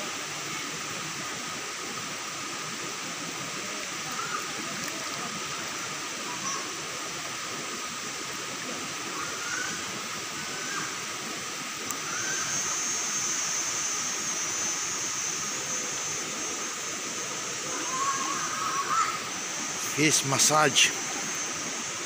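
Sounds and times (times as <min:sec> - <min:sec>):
thin high steady tone: 0:03.4 - 0:08.0, 0:09.1 - 0:22.0.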